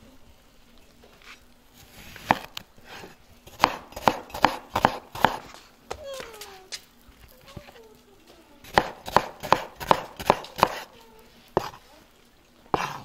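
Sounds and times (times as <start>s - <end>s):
cleaver chopping on wooden board: 3.5s - 6.0s, 8.7s - 10.9s.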